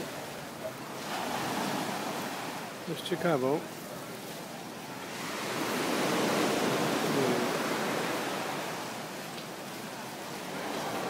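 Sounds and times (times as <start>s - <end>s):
surf washing onto a beach: 0.0s - 11.0s.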